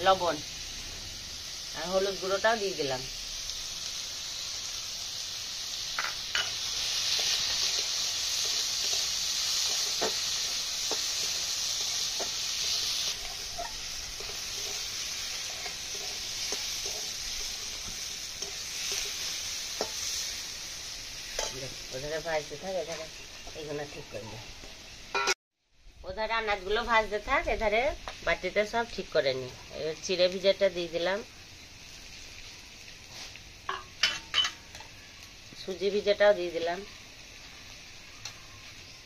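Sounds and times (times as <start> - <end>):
vegetables sizzling in oil: 0.0 - 39.0
metal spatula scraping pan: 10.9 - 20.2.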